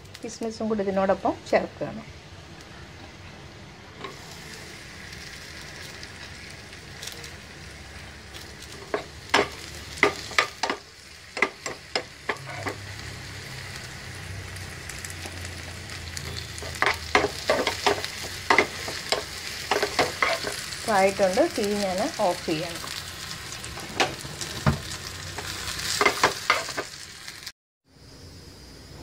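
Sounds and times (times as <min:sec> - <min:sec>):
nuts sizzling in hot fat: 0:00.0 - 0:29.0
steel spoon scraping pan: 0:12.3 - 0:12.8.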